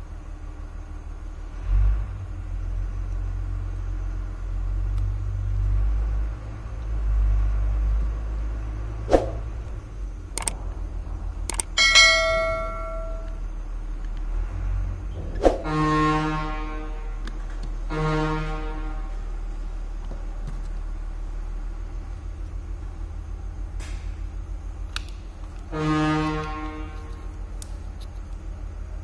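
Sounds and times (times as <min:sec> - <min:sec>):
steady low rumble: 0:08.3 - 0:15.8
sharp clicks: 0:10.3 - 0:10.6, 0:11.4 - 0:11.8
metallic bell ding: 0:11.8 - 0:13.4.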